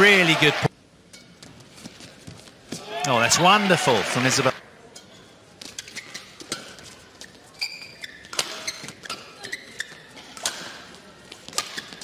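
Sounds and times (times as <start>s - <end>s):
shoes squeaking: 5.6s - 12.0s
rackets hitting shuttlecock: 8.3s - 9.4s, 11.5s - 12.0s.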